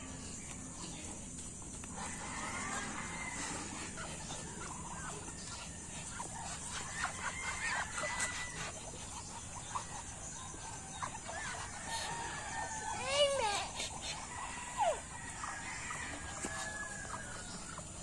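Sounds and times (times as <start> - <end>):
poultry clucking and chirping: 0.0 - 18.0.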